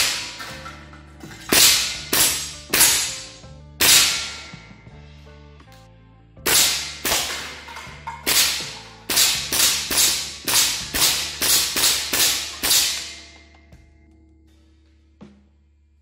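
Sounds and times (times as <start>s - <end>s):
air rifle shots echoing: 0.0s - 0.7s, 1.4s - 4.9s, 6.5s - 13.4s.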